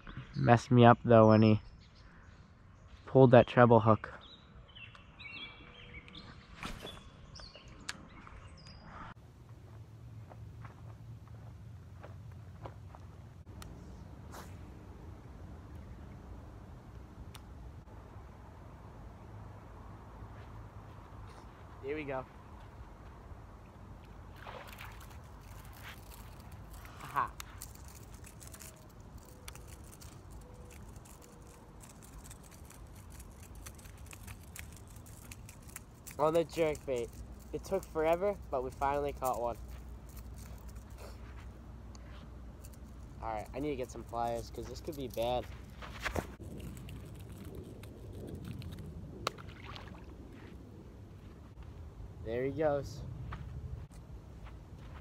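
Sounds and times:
small birds chirping: 0:00.0 - 0:09.2
outdoor background noise: 0:00.0 - 0:55.0.

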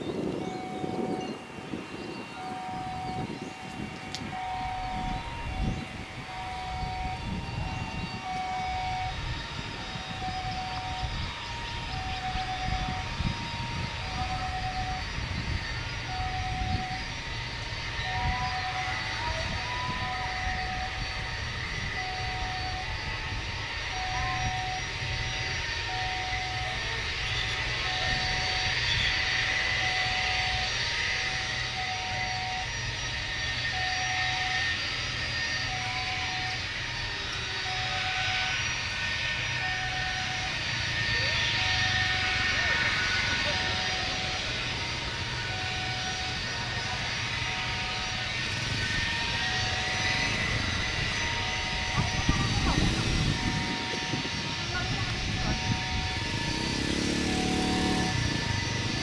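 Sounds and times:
jet engines whining: 0:00.0 - 0:59.0.

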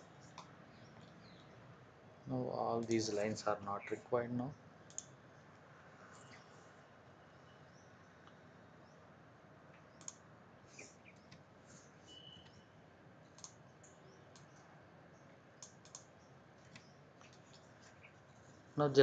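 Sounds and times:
computer mouse clicks: 0:00.2 - 0:01.6, 0:04.8 - 0:05.1, 0:09.7 - 0:10.2, 0:10.8 - 0:11.5, 0:13.3 - 0:14.7, 0:15.6 - 0:18.1.

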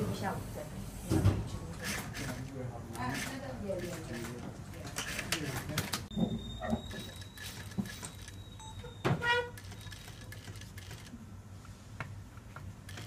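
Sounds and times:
high-pitched tone: 0:06.1 - 0:09.5.

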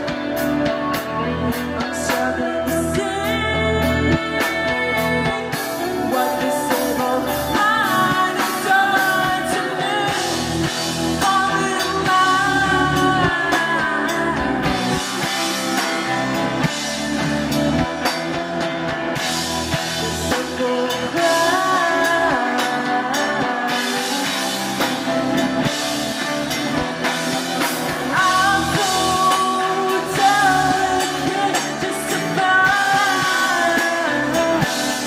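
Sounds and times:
live rock band playing: 0:00.0 - 0:35.0
woman singing: 0:00.8 - 0:15.8, 0:20.0 - 0:25.6, 0:28.0 - 0:35.0.

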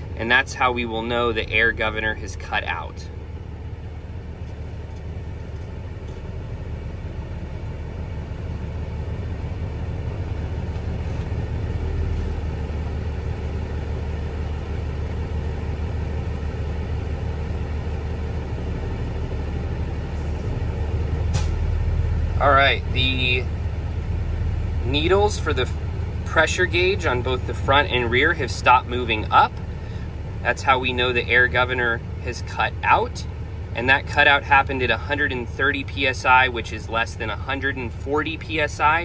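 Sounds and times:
diesel truck engine idling: 0:00.0 - 0:39.0.

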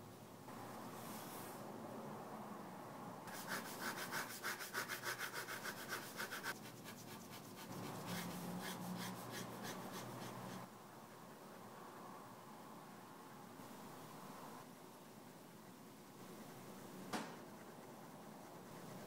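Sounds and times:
pen scratching on paper: 0:03.3 - 0:10.7, 0:17.4 - 0:19.0.

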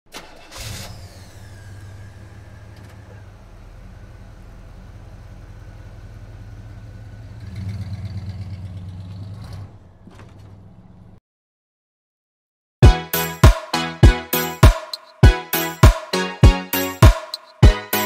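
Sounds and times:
car engine idling: 0:00.5 - 0:11.2.

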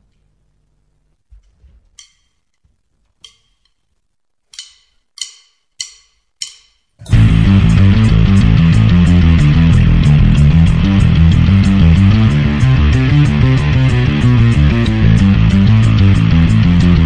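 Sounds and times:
drumsticks clicking together: 0:02.0 - 0:02.5, 0:03.2 - 0:03.8, 0:04.5 - 0:07.0
loud rock music: 0:07.1 - 0:17.0.

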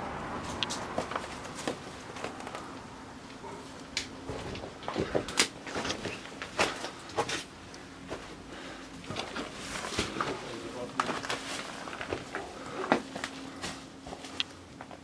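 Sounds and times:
twigs snapping and rustling: 0:09.1 - 0:14.6.

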